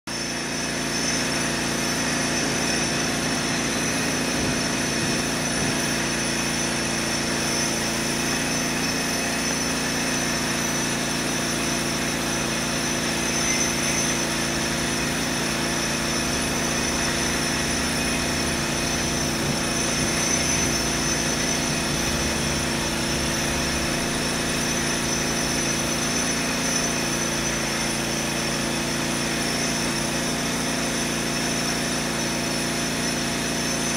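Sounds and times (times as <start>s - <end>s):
machine drone with held tones: 11.7s - 28.0s.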